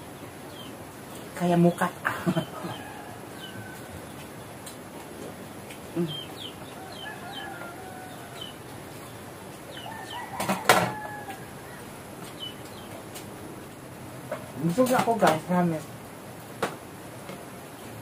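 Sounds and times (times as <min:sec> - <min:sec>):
chicks peeping: 0:00.0 - 0:04.8, 0:05.7 - 0:13.2
chickens clucking: 0:00.4 - 0:13.5.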